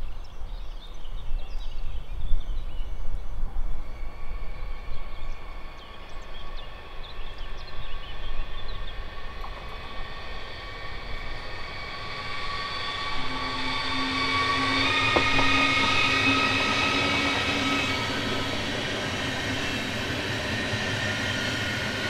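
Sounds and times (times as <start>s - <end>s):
train approaching: 3.4s - 22.0s
steady tones: 10.3s - 22.0s.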